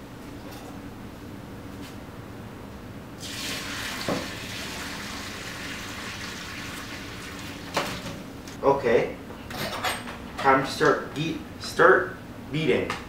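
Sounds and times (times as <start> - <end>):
hot water pouring into a colander: 3.2 - 7.8.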